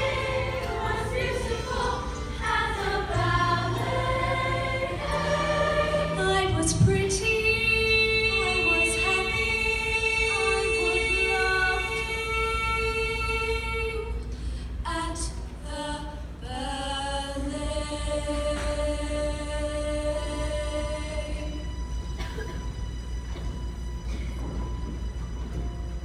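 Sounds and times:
young voices singing held notes: 0:00.0 - 0:14.2.

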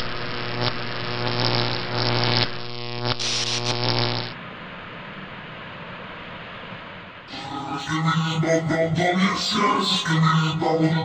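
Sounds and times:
faint hiss: 0:03.1 - 0:07.9
low buzzing drone: 0:07.2 - 0:11.0.

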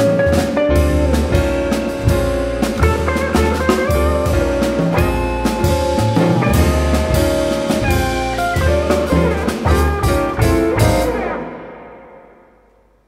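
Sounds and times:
jazz quartet playing: 0:00.0 - 0:11.6
drum strikes: 0:00.0 - 0:12.4.

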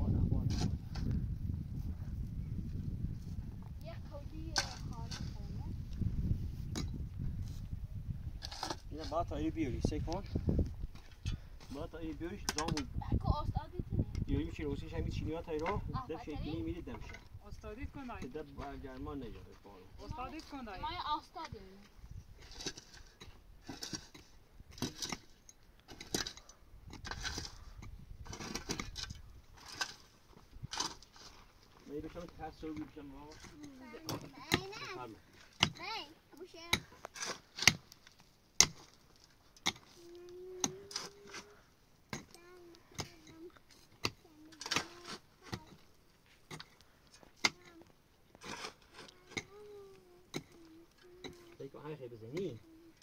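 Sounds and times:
shovel scraping earth and gravel: 0:00.4 - 0:01.1, 0:08.3 - 0:09.5, 0:22.4 - 0:50.6.

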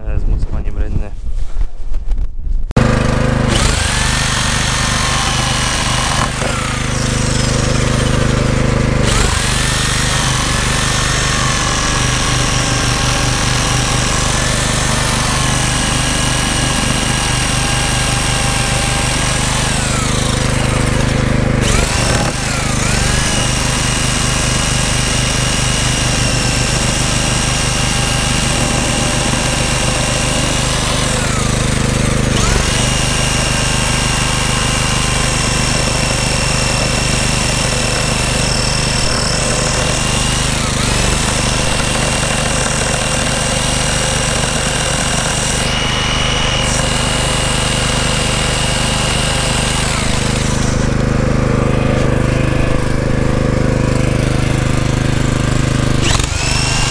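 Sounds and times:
electric jigsaw cutting wood: 0:02.8 - 0:56.9.

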